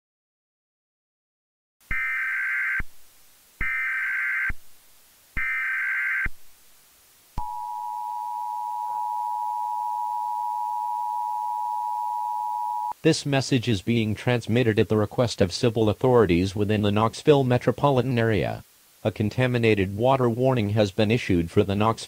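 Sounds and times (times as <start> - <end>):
two-tone attention signal: 7.4 - 13.0.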